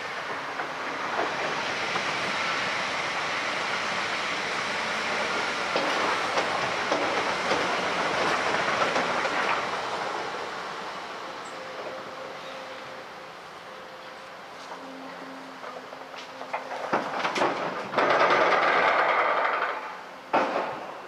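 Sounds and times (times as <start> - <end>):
wheels clicking over rail joints: 0.0 - 2.6, 5.1 - 10.4, 14.7 - 21.0
electric trains rushing past: 0.0 - 21.0.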